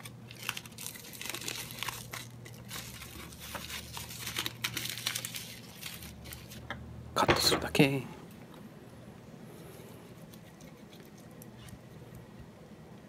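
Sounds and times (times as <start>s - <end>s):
seaweed sheet crinkling: 0.0s - 6.6s.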